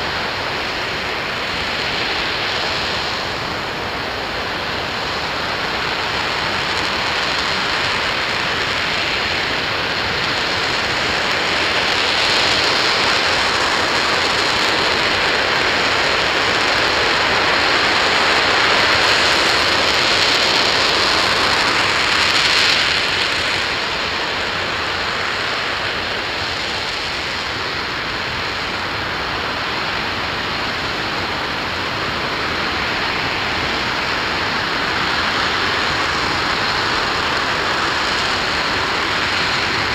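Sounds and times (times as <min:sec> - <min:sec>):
rocket engine roaring: 0:00.0 - 0:39.9.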